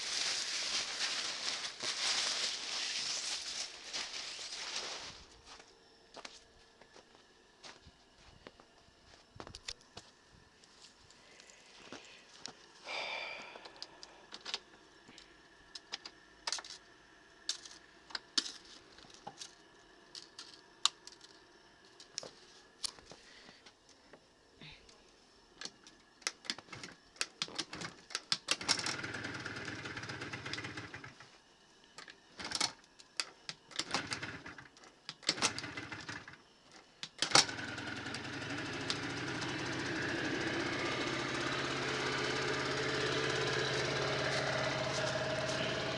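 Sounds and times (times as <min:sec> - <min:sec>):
scooter engine starting and running: 0:28.5 - 0:31.2, 0:33.8 - 0:34.7, 0:35.3 - 0:36.4, 0:37.2 - 0:45.9.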